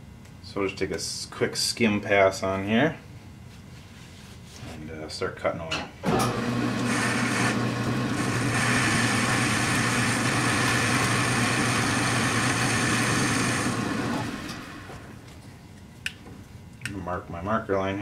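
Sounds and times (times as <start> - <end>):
lathe motor hum: 6.1 - 15.3.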